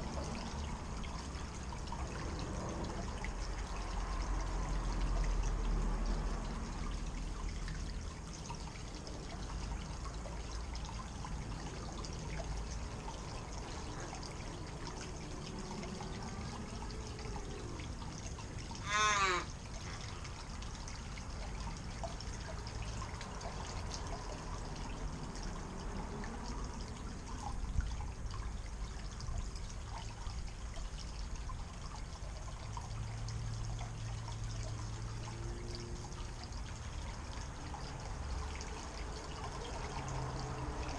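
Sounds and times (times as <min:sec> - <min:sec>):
waterfall trickling into pond: 0:00.0 - 0:40.9
crow calling: 0:18.8 - 0:19.5.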